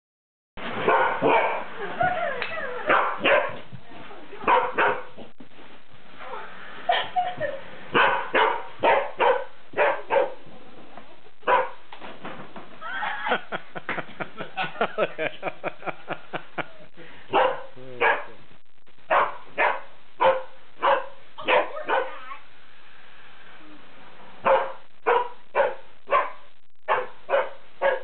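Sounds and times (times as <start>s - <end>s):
dog barking: 0.8s - 1.7s, 2.8s - 3.6s, 4.4s - 5.1s, 7.9s - 10.4s, 11.4s - 11.8s, 17.3s - 18.4s, 19.1s - 22.4s, 24.4s - 28.0s
dog yipping: 11.5s - 11.8s, 19.1s - 22.4s, 24.5s - 28.0s.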